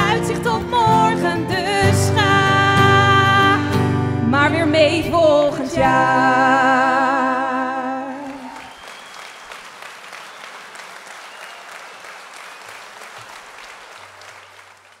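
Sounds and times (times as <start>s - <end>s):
acoustic guitars: 0.0s - 8.5s
two women singing: 0.0s - 8.7s
audience clapping: 8.1s - 15.0s.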